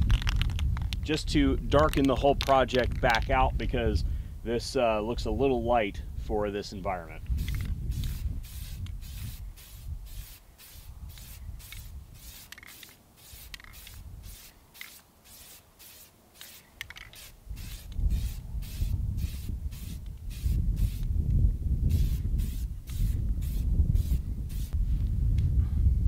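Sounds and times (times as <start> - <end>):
spray-paint can hissing in bursts: 7.4 - 21.1, 21.9 - 24.8.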